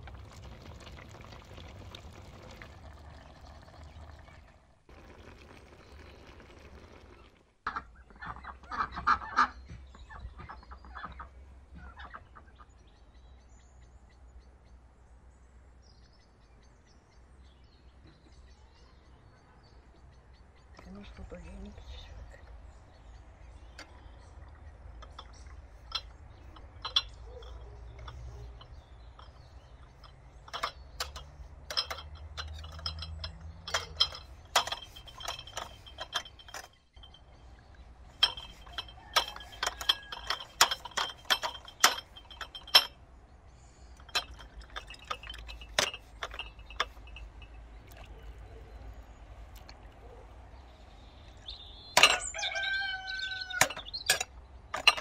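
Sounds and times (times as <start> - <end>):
thick sauce pouring: 0.0 - 7.5
ladle clinking against glass jars: 23.8 - 43.0, 44.0 - 48.6, 51.9 - 55.0.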